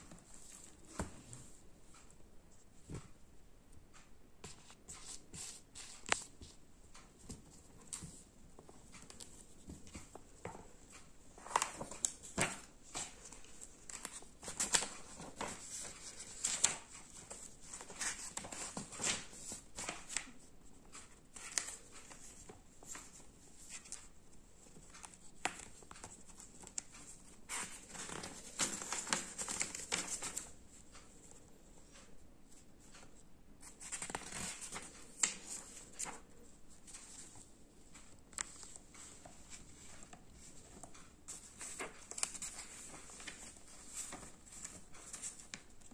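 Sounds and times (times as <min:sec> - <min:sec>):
paper pages rustling: 0:04.4 - 0:32.0, 0:32.8 - 0:45.9.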